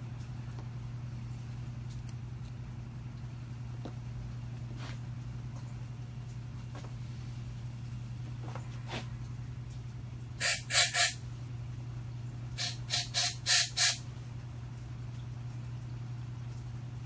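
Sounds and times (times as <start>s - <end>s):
steady low hum: 0.0s - 17.0s
short hissing spray blasts: 12.6s - 14.0s.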